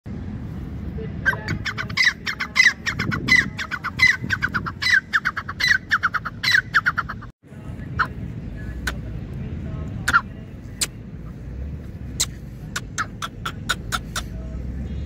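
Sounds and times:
francolin calling: 0:01.3 - 0:07.3.

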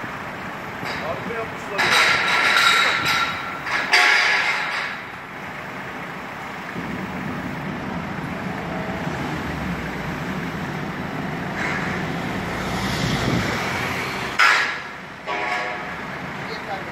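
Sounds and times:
forklift engine running: 0:00.0 - 0:16.9.

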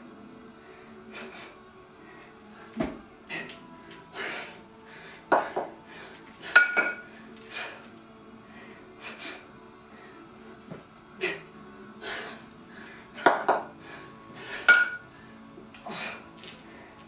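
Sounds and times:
person breathing hard: 0:03.3 - 0:10.3, 0:11.2 - 0:17.0
kettlebells clinking together: 0:06.6 - 0:07.1, 0:13.2 - 0:13.7, 0:14.6 - 0:15.1.

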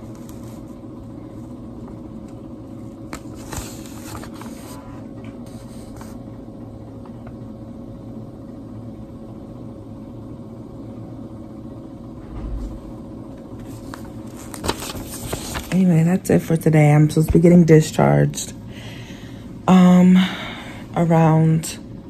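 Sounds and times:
room machinery humming: 0:00.0 - 0:22.0
paper rustling: 0:03.1 - 0:06.2, 0:13.6 - 0:15.9.

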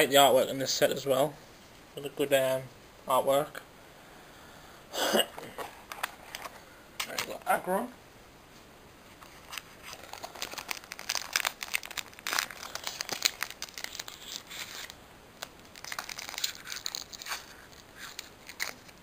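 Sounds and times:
wrapper crinkling and tearing: 0:09.2 - 0:19.0.

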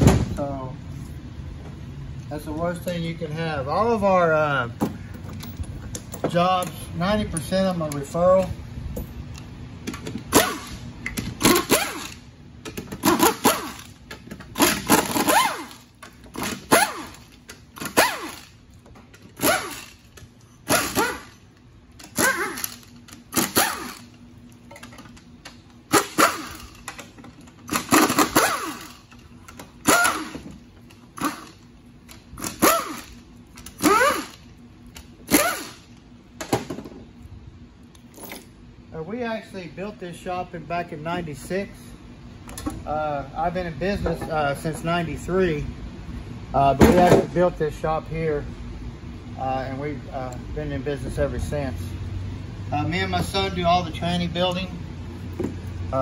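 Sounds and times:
pneumatic impact wrench bursts: 0:10.2 - 0:18.6, 0:19.2 - 0:24.2, 0:25.8 - 0:36.0.

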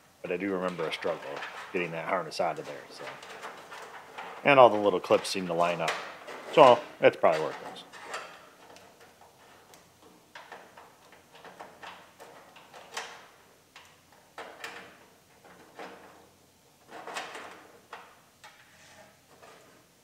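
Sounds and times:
wiring harness rustling: 0:00.6 - 0:13.3
harness clicking against sheet metal: 0:00.7 - 0:16.2.

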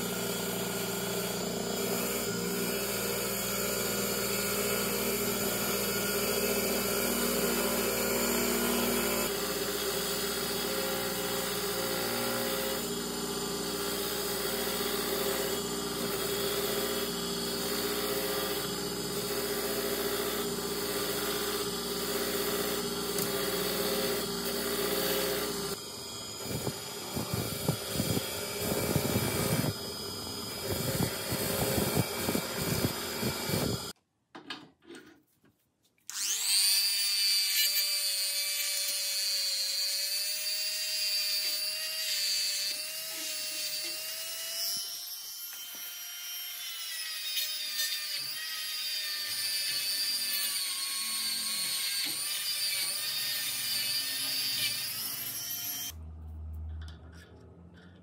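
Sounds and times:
rotary tool whining: 0:00.0 - 0:34.0, 0:36.1 - 0:56.0
wire wheel scrubbing rust: 0:26.4 - 0:33.9.

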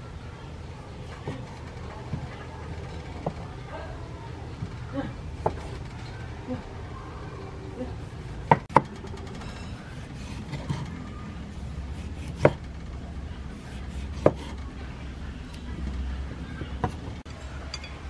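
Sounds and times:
knife cutting tomatoes: 0:13.5 - 0:14.6.

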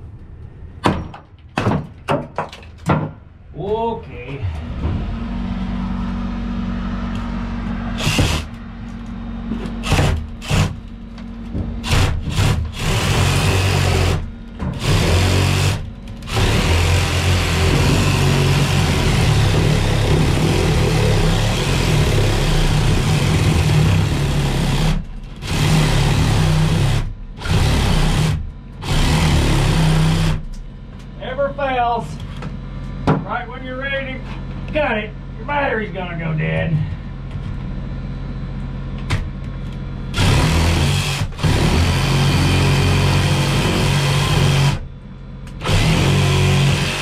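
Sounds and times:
power saw cutting roofing: 0:04.4 - 0:08.7, 0:09.6 - 0:11.0, 0:11.8 - 0:30.5, 0:40.1 - 0:44.9, 0:45.6 - 0:47.0.

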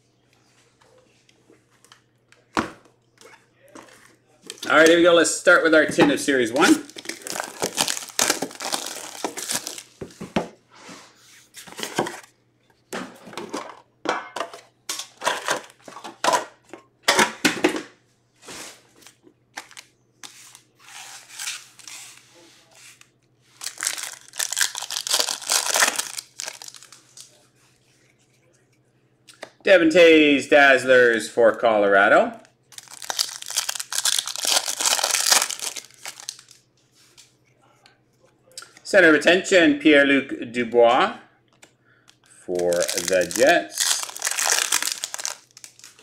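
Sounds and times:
card wrappers crinkling and tearing: 0:03.9 - 0:05.1, 0:06.0 - 0:10.0, 0:19.0 - 0:22.1, 0:23.6 - 0:27.4, 0:32.7 - 0:36.6, 0:42.1 - 0:46.0.

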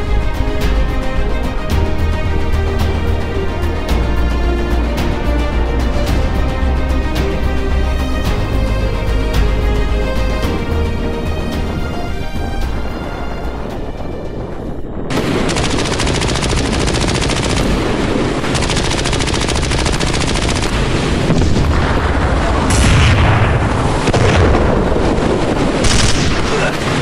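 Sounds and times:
background music: 0:00.0 - 0:24.9
rapid machine-gun fire: 0:15.1 - 0:21.0, 0:25.8 - 0:26.8.

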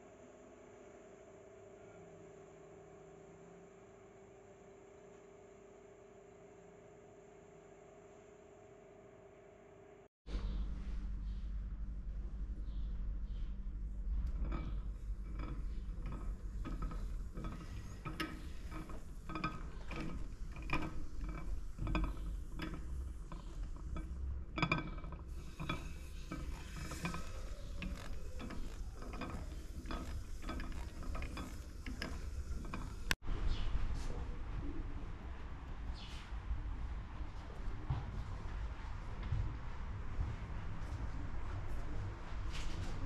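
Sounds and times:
steady low hum: 0:00.0 - 0:43.0
mechanism clicking and creaking: 0:13.6 - 0:33.2.

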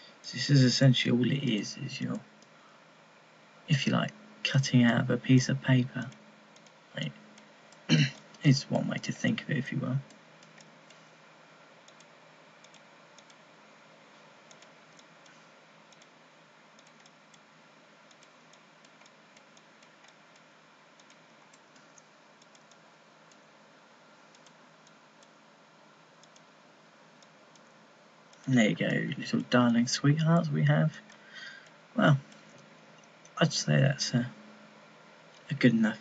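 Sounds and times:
low microphone hiss: 0:00.0 - 0:36.0
computer mouse clicking: 0:10.1 - 0:11.1, 0:11.8 - 0:13.4, 0:14.5 - 0:16.2, 0:16.8 - 0:17.5, 0:18.1 - 0:23.5, 0:24.3 - 0:25.4, 0:26.2 - 0:26.5.

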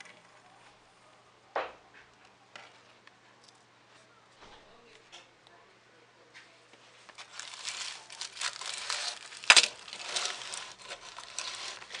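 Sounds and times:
handling noise rustling: 0:07.0 - 0:12.0.

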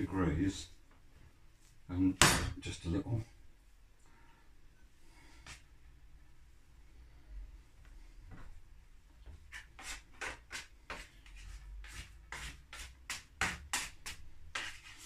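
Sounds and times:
scraper scraping sticky dough: 0:09.5 - 0:15.0.

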